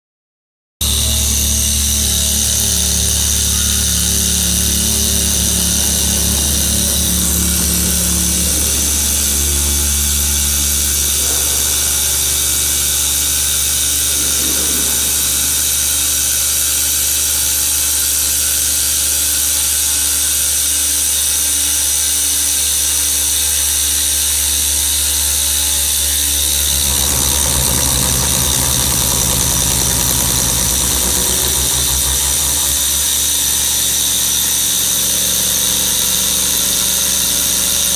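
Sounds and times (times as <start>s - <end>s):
cutter grinding stone: 0.8s - 17.4s, 23.4s - 37.9s
water coolant spray: 0.8s - 18.9s
machine spindle whine: 0.8s - 37.9s.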